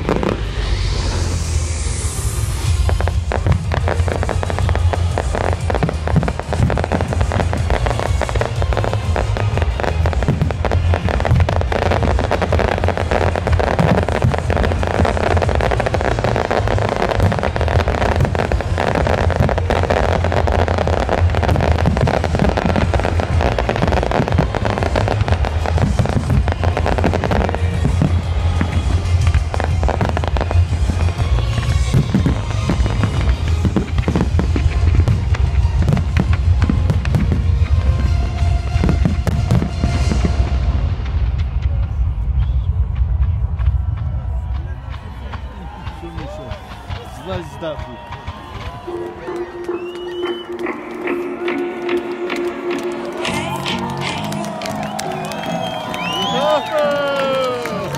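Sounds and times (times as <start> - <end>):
loud music: 0.0 - 43.6, 48.0 - 57.9
deep rumble: 0.0 - 46.0
fireworks bangs and crackling: 0.0 - 57.9.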